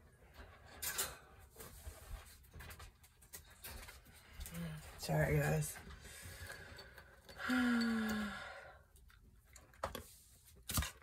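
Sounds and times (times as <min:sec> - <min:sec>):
woman sighing: 0:07.3 - 0:08.8.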